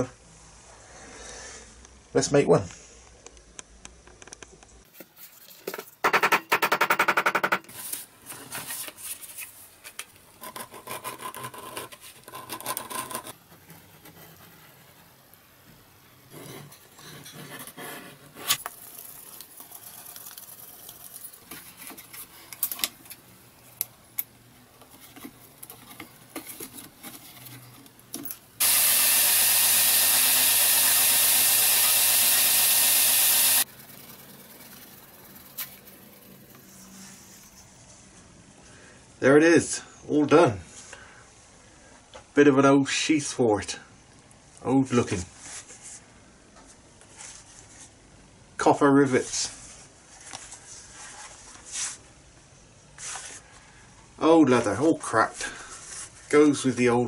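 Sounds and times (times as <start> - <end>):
belt grinder sanding: 28.6 - 36.3.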